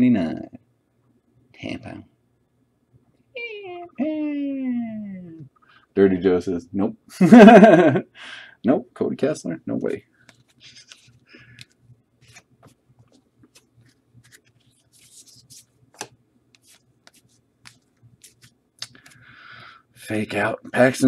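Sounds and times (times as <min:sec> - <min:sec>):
trading cards being flipped: 0:10.2 - 0:19.2.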